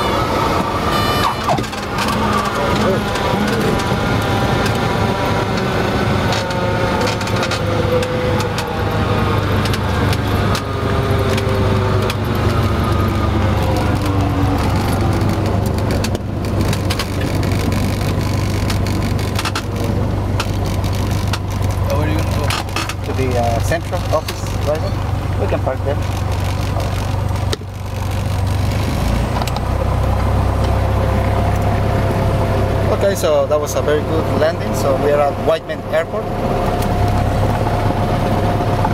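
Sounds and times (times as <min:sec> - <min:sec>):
aircraft engine and propeller drone: 0:00.0 - 0:38.9
clicks and rattles: 0:13.7 - 0:24.8.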